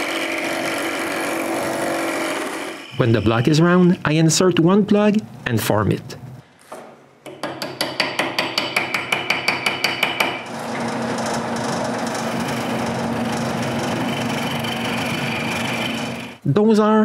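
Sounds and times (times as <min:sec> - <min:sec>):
wood lathe humming: 0:00.0 - 0:03.5, 0:10.4 - 0:16.4.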